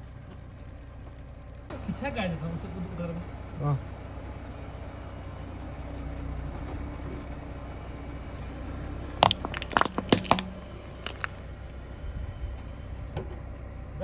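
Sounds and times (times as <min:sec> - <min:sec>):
car engine idling: 0:00.0 - 0:14.0
plastic tubes crunching under tyre: 0:09.1 - 0:11.4.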